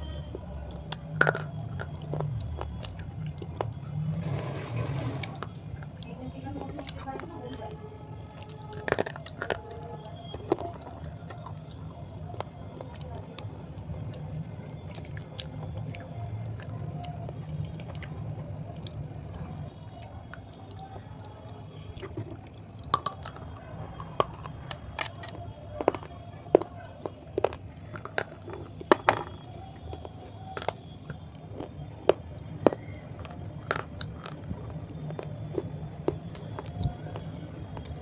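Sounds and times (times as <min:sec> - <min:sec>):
dry clay crunching and cracking: 0:00.0 - 0:04.2, 0:05.2 - 0:38.0.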